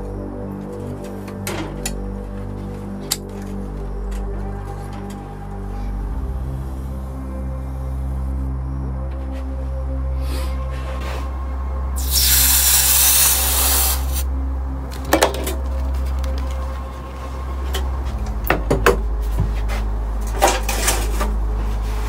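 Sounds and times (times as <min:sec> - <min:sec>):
hot metal sizzling in water: 0:12.0 - 0:14.2.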